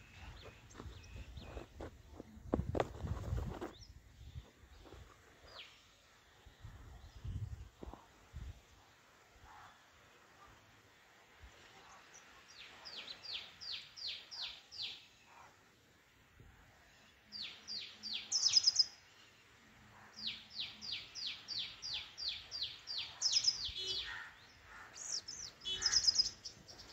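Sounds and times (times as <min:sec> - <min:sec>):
sunbird chipping calls: 0:25.0 - 0:26.9.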